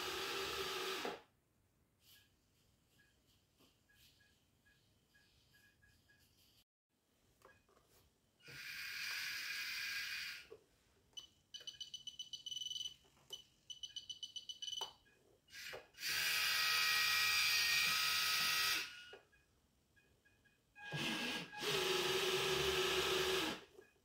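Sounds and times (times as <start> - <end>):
small electric motors whirring: 8.4 - 10.5.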